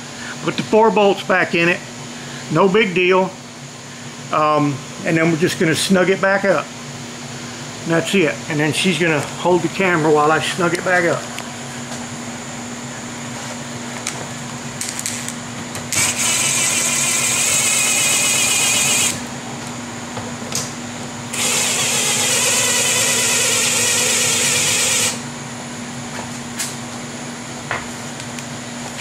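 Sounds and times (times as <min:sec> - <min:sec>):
power drill running: 0:15.9 - 0:19.3, 0:21.3 - 0:25.3.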